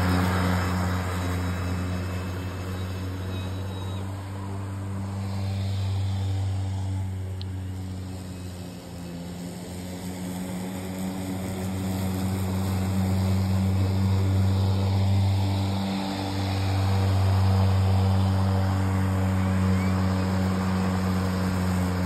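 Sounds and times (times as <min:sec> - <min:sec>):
electric lawnmower humming: 0:00.0 - 0:22.0.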